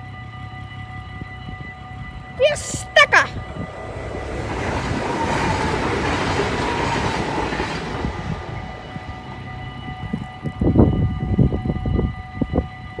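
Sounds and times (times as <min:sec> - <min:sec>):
train rushing past: 0:02.1 - 0:13.0
level crossing bells ringing: 0:02.4 - 0:05.8.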